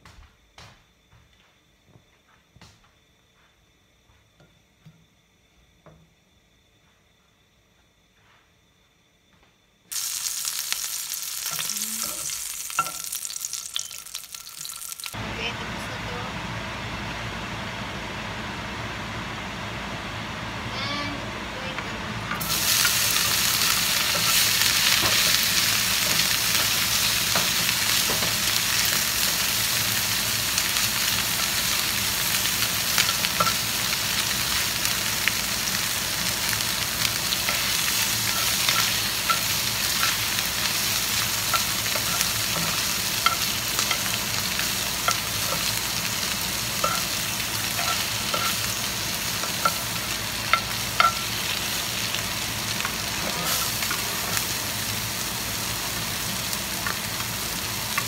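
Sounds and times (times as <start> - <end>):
fish frying in hot oil: 9.9 - 15.2, 22.4 - 58.0
tongs and spatula scraping pan: 46.8 - 48.7.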